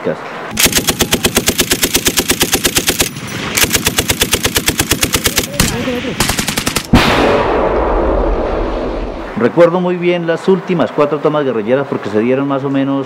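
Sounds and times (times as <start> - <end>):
automatic gunfire bursts: 0.5 - 7.0
sharp bang: 6.9 - 9.5.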